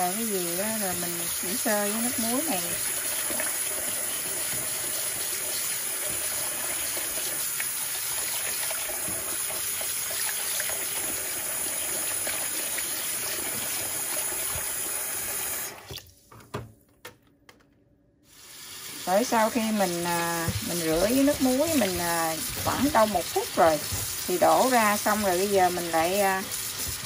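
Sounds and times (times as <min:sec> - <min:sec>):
tap running into pot of water: 0:20.3 - 0:24.3.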